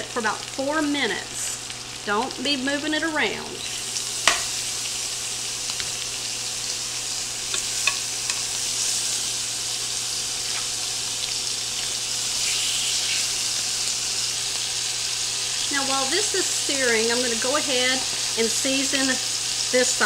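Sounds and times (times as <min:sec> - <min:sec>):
meat sizzling in skillet: 0:00.0 - 0:20.0.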